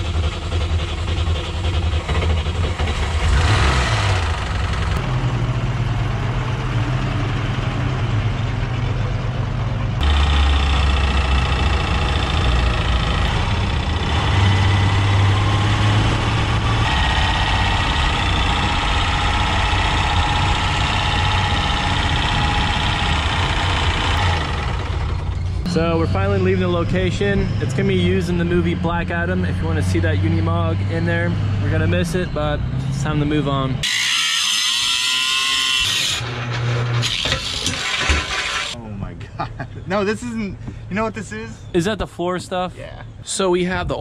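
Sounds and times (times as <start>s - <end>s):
truck engine running: 0.0s - 33.8s.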